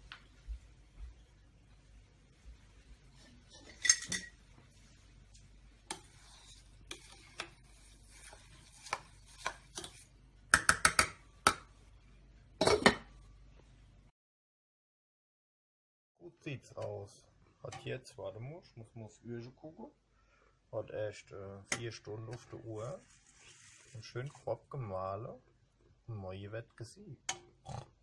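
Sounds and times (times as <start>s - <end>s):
glass pot lid clattering: 3.7s - 4.3s, 12.6s - 13.0s
spatula scraping and knocking pot: 5.8s - 11.7s.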